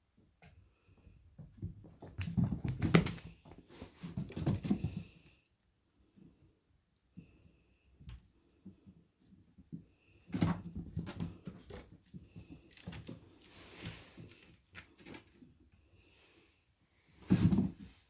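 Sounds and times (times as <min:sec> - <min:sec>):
kittens scrabbling: 0:00.4 - 0:05.4, 0:08.4 - 0:15.7
kittens thumping on plastic: 0:01.2 - 0:05.4, 0:08.1 - 0:15.4, 0:17.2 - 0:18.0.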